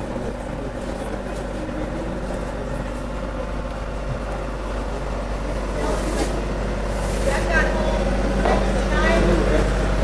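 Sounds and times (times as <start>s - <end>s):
ventilation hum and rushing air: 0.0s - 10.0s.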